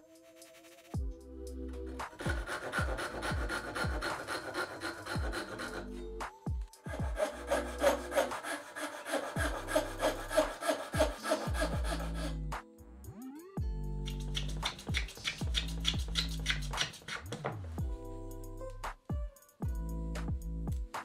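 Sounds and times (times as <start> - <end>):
background music with bass: 1.0 - 4.1, 9.4 - 21.0
handsaw sawing wood: 1.9 - 6.0, 6.9 - 12.4.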